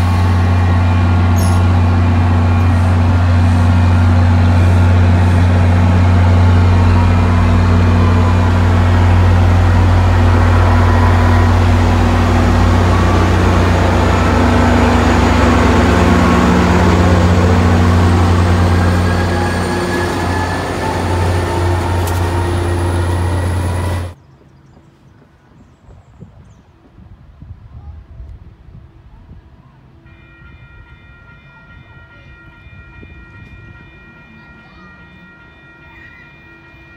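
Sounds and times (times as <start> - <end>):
diesel locomotive engine drone: 0.0 - 24.2
train coaches rumbling over rails: 0.0 - 24.2.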